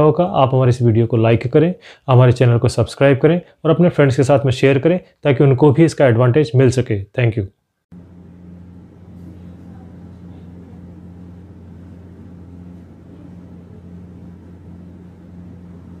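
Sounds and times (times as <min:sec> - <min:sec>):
low hum: 0:07.9 - 0:16.0.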